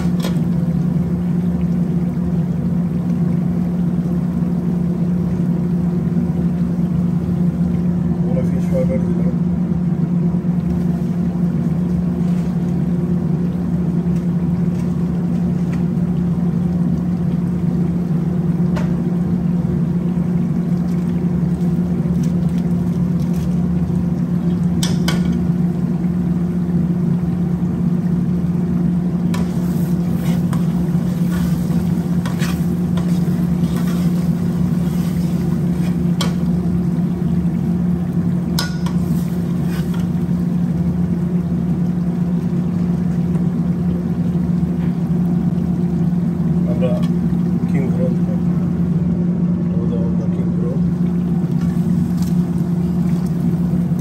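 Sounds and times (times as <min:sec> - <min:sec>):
low mechanical hum: 0:00.0 - 0:54.0.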